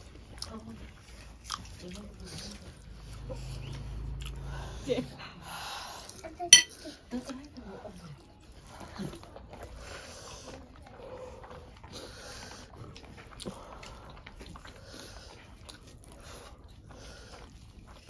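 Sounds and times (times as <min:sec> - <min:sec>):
chewing and mouth noises: 0:00.0 - 0:18.0
fingers squishing rice and curry: 0:08.4 - 0:18.0.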